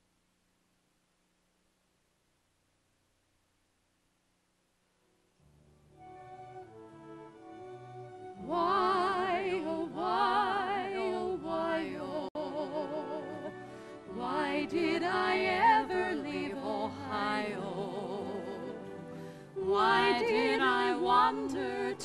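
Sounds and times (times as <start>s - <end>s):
two women singing a duet: 8.4s - 22.0s.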